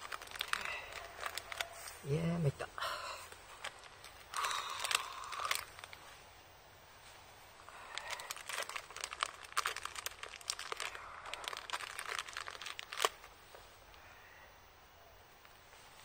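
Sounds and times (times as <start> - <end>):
plastic wrapper crinkling: 0.0 - 2.2, 3.2 - 6.1, 7.7 - 13.6.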